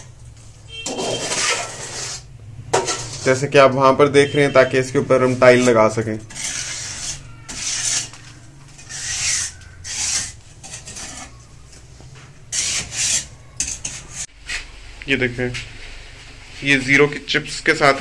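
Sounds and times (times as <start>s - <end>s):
trowel scraping wet concrete: 0.8s - 3.5s, 5.1s - 11.4s, 12.5s - 14.3s.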